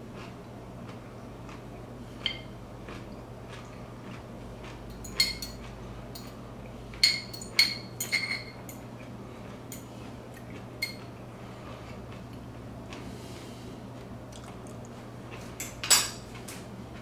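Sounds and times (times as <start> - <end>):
fork clinking against glass jar: 5.0 - 5.6.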